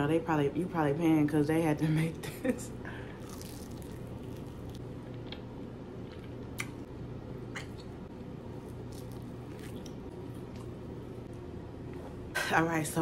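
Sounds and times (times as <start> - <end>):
steady low hum: 0.0 - 13.0
chewing mouth sounds: 3.2 - 6.9, 8.6 - 10.8.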